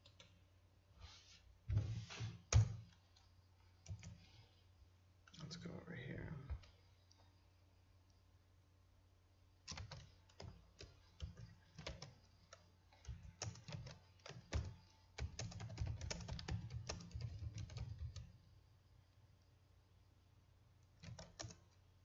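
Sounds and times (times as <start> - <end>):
keyboard typing clicks: 9.7 - 18.3, 21.0 - 21.8.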